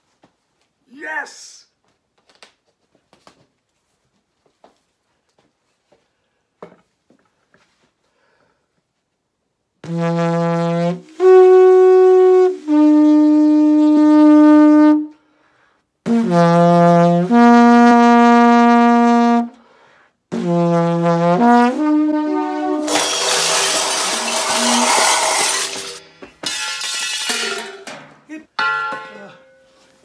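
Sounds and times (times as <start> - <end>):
homemade tube horn blown: 9.8 - 15.2, 16.0 - 19.6, 20.3 - 26.0.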